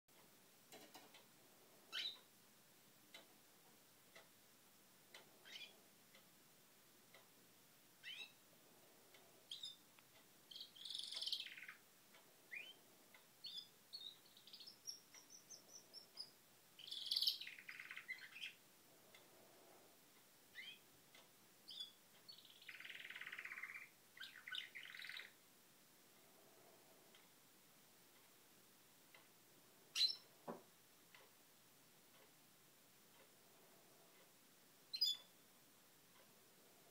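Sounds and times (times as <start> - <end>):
canaries chirping and singing: 10.5 - 11.7.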